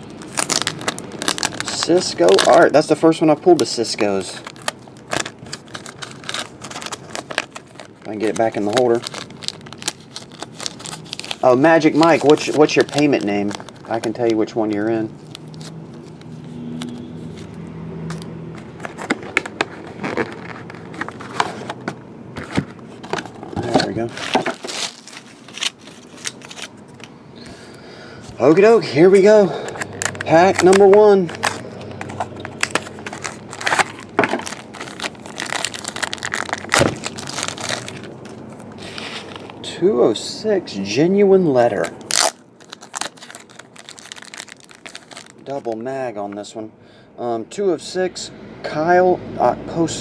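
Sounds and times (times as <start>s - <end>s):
plastic wrapper crinkling: 0.0s - 27.1s, 28.4s - 39.6s, 41.7s - 45.8s
low steady hum: 0.0s - 50.0s
cardboard box tearing: 23.6s - 26.7s, 32.2s - 38.1s.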